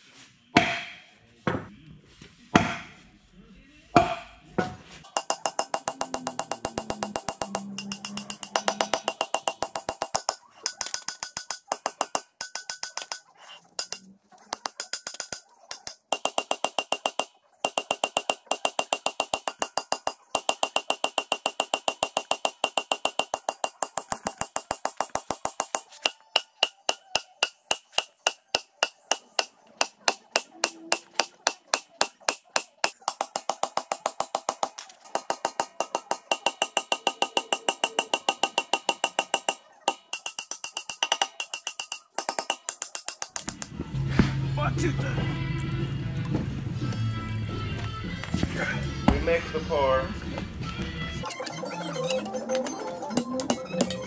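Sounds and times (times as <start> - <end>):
fast percussive tick: 5.1 - 13.2
sustained music tones: 51.2 - 54.0.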